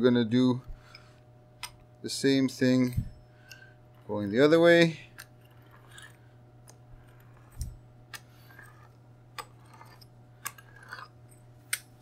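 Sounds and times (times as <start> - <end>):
pizza cutter wheel clicking: 3.4 - 11.0.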